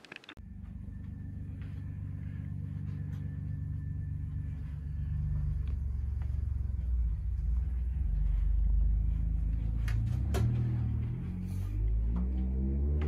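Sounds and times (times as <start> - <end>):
low steady rumble: 0.4 - 13.0.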